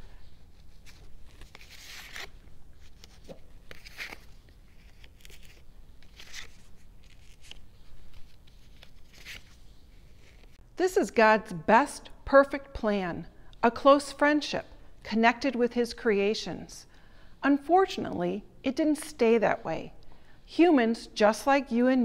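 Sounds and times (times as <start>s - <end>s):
paper and velcro rustling: 0.4s - 10.6s.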